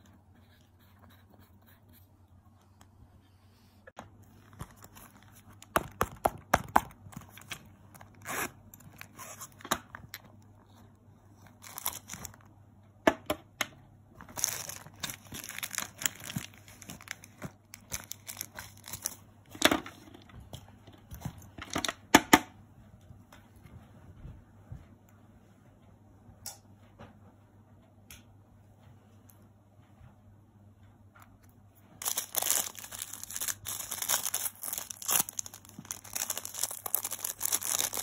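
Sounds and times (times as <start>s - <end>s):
plastic packets crinkling: 11.5s - 12.4s, 14.2s - 19.2s, 32.0s - 38.0s
small containers clicking: 32.0s - 38.0s.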